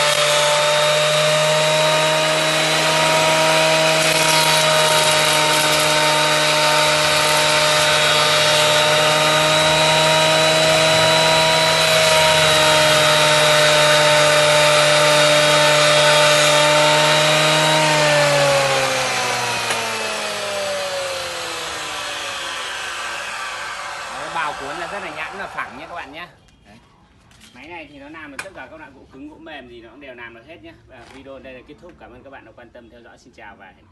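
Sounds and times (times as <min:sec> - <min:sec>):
planer motor whining: 0:00.0 - 0:26.1.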